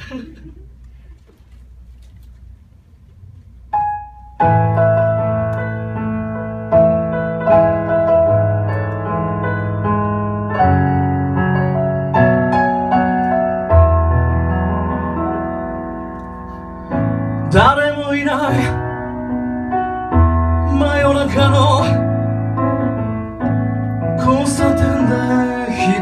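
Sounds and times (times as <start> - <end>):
piano chords on keyboard: 3.7 - 26.0.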